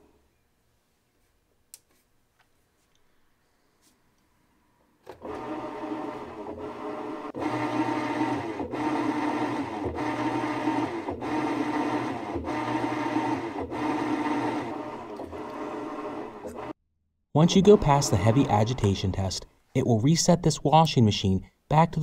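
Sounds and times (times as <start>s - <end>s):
washing machine agitating: 5.2s - 16.7s, 17.5s - 18.9s.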